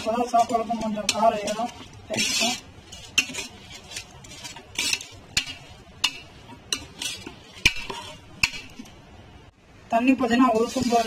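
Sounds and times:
ladle scraping through rice: 0.0 - 8.6.

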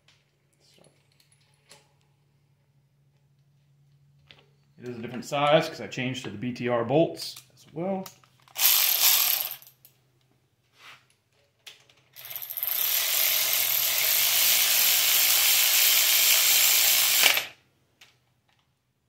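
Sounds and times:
cordless electric ratchet running: 8.5 - 9.7, 12.2 - 17.6.

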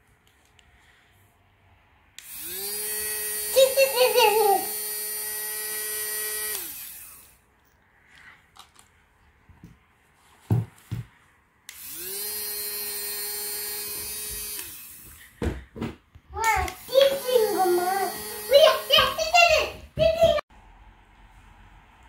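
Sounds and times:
small electric motor whirring: 2.2 - 7.4, 11.7 - 15.2, 16.7 - 19.6
soft thumps: 10.4 - 11.2.

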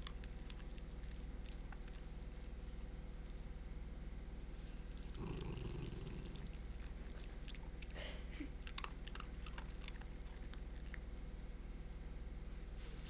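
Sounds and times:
dog crunching dry food: 8.6 - 11.0.

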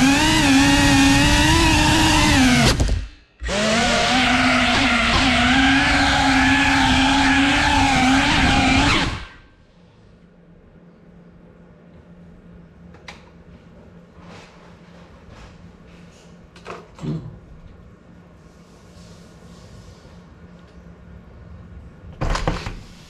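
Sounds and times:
drone motors and propellers whining: 0.0 - 9.5.

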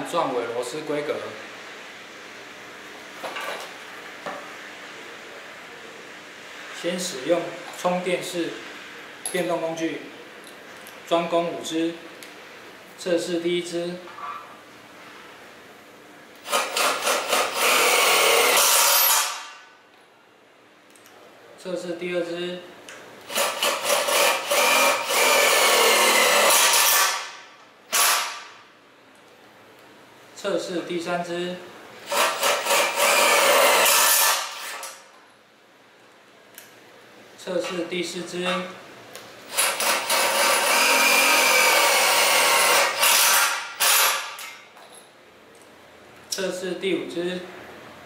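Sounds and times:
power driver driving screw into steel: 16.4 - 19.5, 23.3 - 28.5, 32.1 - 35.0, 39.5 - 44.6.

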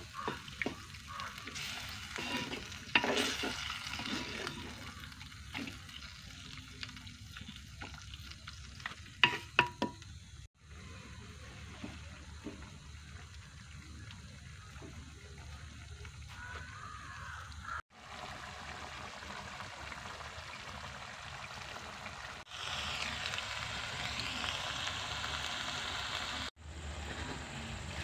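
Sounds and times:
curry sizzling: 0.0 - 10.9, 11.5 - 26.6
wooden spoon scraping in pot: 0.2 - 5.8.

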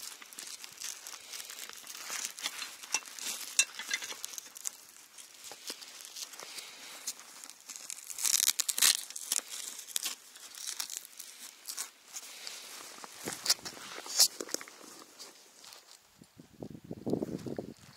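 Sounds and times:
backpack fabric rustling and scraping: 12.1 - 16.0.

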